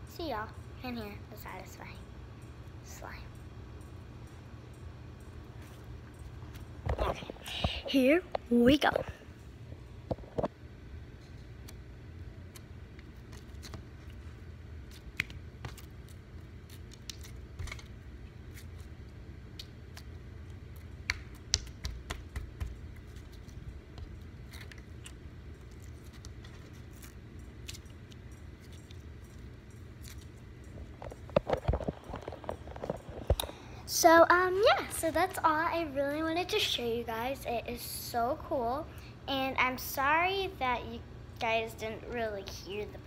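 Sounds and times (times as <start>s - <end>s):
low steady rumble: 0.0s - 43.0s.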